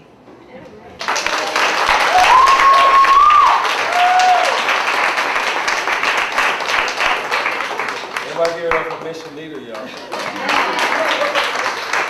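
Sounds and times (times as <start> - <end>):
audience applauding: 1.0 - 12.0
long high calls: 2.1 - 4.6.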